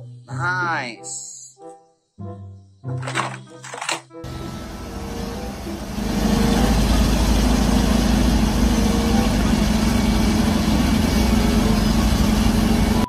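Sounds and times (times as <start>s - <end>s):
bulldozer pushing earth and rubble: 3.0s - 13.0s
bulldozer diesel engine droning: 4.2s - 13.0s.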